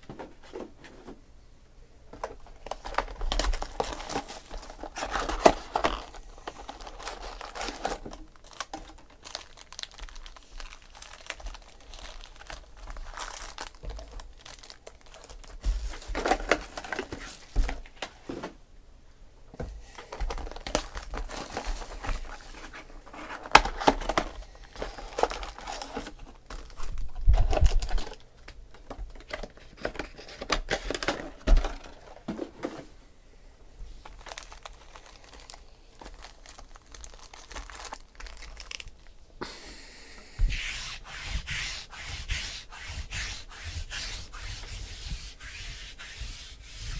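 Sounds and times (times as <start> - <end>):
foil packs crinkling: 2.2 - 17.9, 20.0 - 32.2, 34.0 - 39.2.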